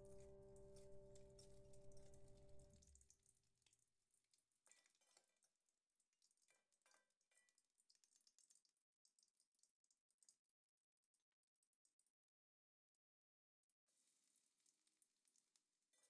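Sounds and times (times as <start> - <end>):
eggs sizzling in oil: 0.0 - 9.6.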